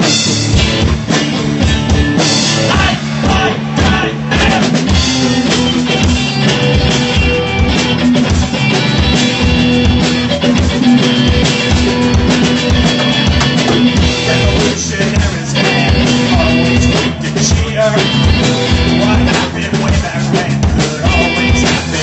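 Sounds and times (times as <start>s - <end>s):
live rock band playing: 0.0s - 22.0s
man singing: 2.5s - 5.0s, 13.8s - 22.0s.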